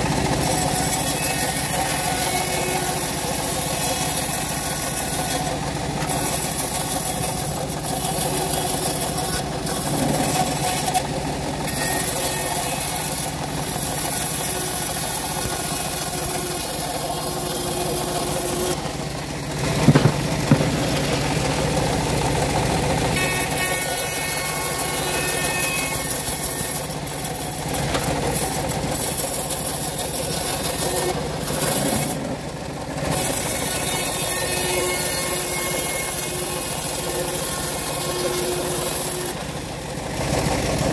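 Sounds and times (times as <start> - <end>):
bandsaw ripping wood: 0.0 - 11.0, 23.2 - 32.4
sharp knocks: 19.8 - 21.0.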